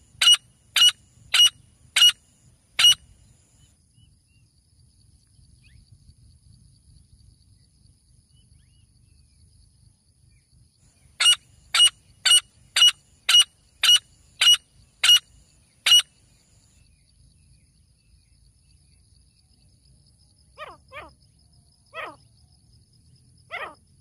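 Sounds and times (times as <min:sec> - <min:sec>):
francolin calling: 0:00.0 - 0:02.2, 0:02.8 - 0:03.1, 0:11.1 - 0:16.9, 0:20.6 - 0:21.2, 0:21.9 - 0:22.3, 0:23.5 - 0:23.8.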